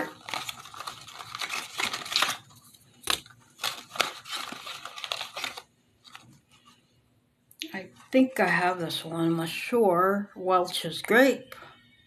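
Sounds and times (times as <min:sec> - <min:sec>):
packaging ripping: 0:00.0 - 0:06.4
packaging crinkling: 0:00.0 - 0:06.8.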